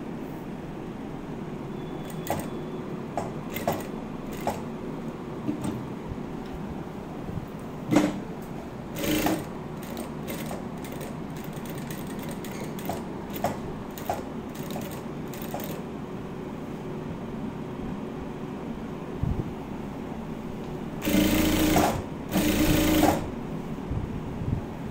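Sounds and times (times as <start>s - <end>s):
sewing machine stitching: 2.1s - 2.6s, 3.5s - 4.6s, 9.0s - 15.8s, 21.0s - 23.3s.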